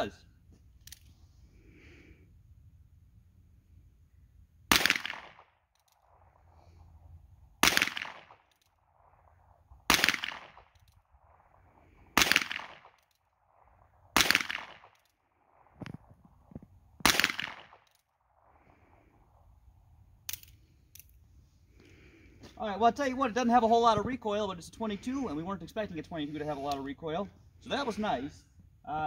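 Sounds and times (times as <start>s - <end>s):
revolver shots: 7.6s - 8.4s, 9.9s - 10.7s.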